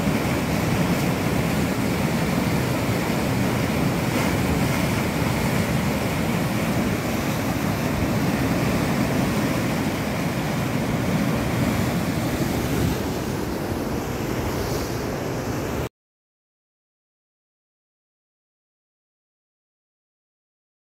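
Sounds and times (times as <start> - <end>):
turbulent water rushing: 0.0 - 15.9.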